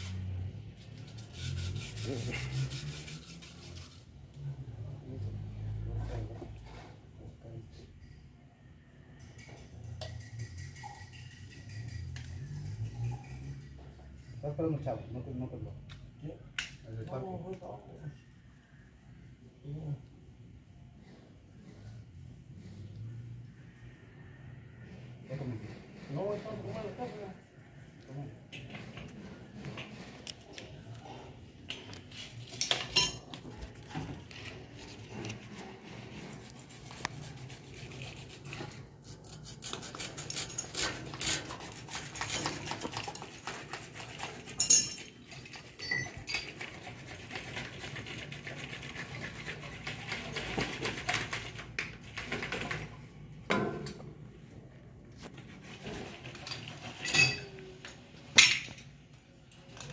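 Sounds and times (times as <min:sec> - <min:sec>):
metal tools clinking and clattering: 0:32.3 - 0:33.4, 0:44.5 - 0:46.6, 0:56.4 - 0:57.6.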